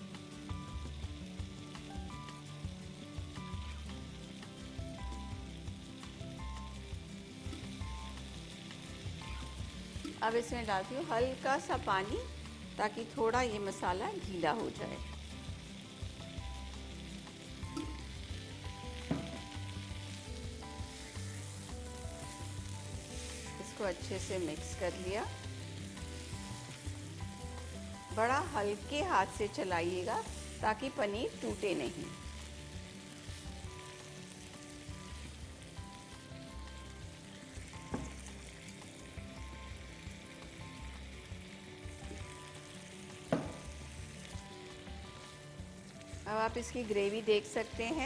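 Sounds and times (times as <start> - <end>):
food sizzling in a frying pan: 0.0 - 48.0
soft background music: 0.0 - 48.0.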